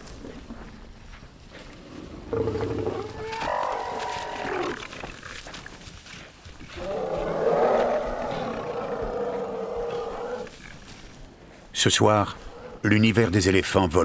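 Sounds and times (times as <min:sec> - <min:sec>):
animal cries and roars: 0:02.2 - 0:05.5, 0:06.7 - 0:10.9, 0:12.3 - 0:12.9.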